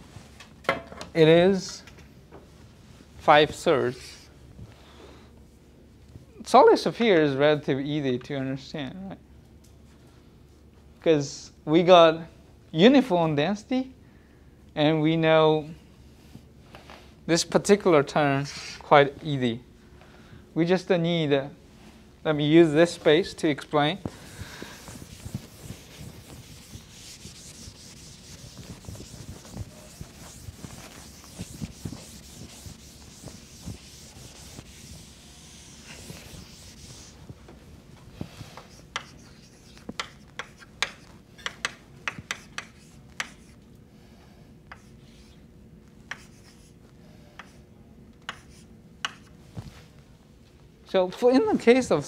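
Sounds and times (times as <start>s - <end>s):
chalk writing on blackboard: 24.7s - 37.2s, 38.2s - 43.6s, 44.7s - 45.4s, 46.1s - 49.3s
eraser rubbing on blackboard: 24.8s - 37.2s, 38.4s - 43.6s, 46.1s - 46.8s, 48.3s - 49.3s.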